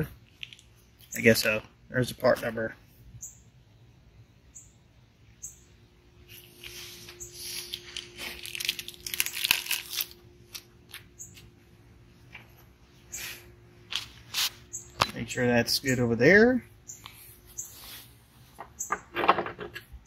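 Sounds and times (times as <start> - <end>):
packaging crinkling and tearing: 7.4 - 11.1.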